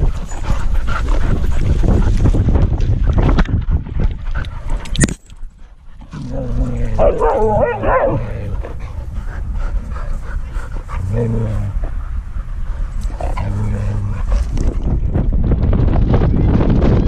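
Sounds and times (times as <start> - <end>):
wind and scuffling on camera: 0.0 - 17.0
dog low vocalizations: 6.0 - 15.2.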